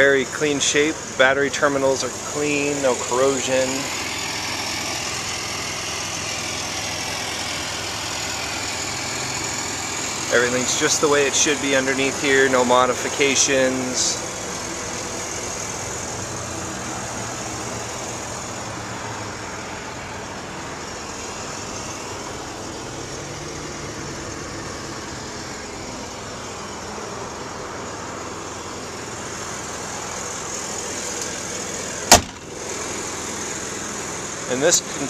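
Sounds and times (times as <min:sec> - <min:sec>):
car engine idling: 0:00.0 - 0:35.0
hood slammed shut: 0:32.0 - 0:32.6.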